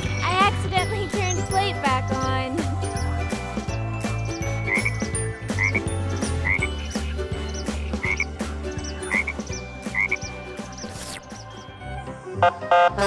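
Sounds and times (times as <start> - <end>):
frogs croaking: 4.1 - 11.6.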